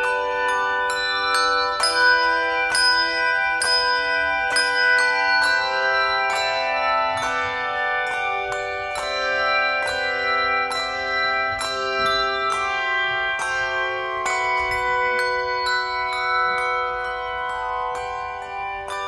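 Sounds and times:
handbells ringing: 0:00.0 - 0:19.0.

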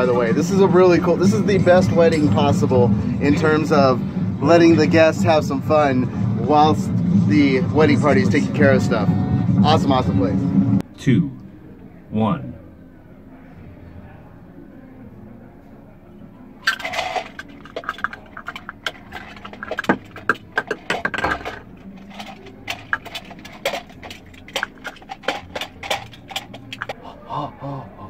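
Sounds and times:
hard props clattering together: 0:16.7 - 0:26.9.

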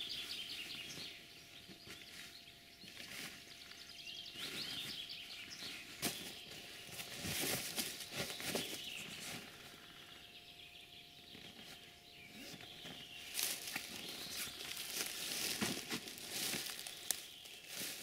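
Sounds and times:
leaves and fabric rustling: 0:05.8 - 0:09.6, 0:12.4 - 0:18.0.

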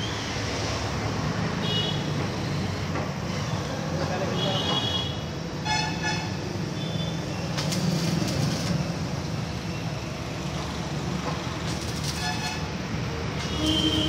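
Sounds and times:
welding arc crackling: 0:06.3 - 0:14.0.

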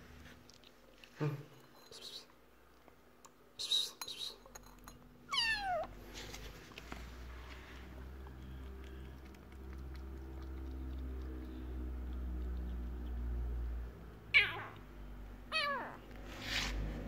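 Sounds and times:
low steady hum: 0:00.0 - 0:17.0
kitten meowing: 0:05.3 - 0:05.9, 0:14.3 - 0:14.8, 0:15.5 - 0:16.0
kitten lapping milk: 0:05.7 - 0:14.2.

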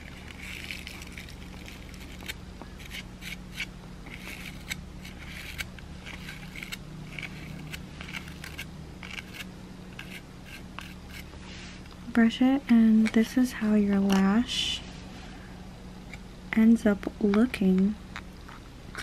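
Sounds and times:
bristles brushing false lash: 0:00.0 - 0:11.9.

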